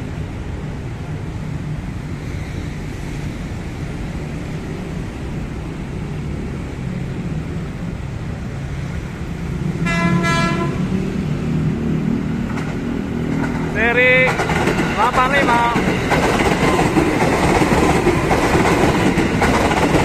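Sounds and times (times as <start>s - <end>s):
train low rumble: 0.0s - 20.0s
train horn blasts: 9.8s - 10.9s.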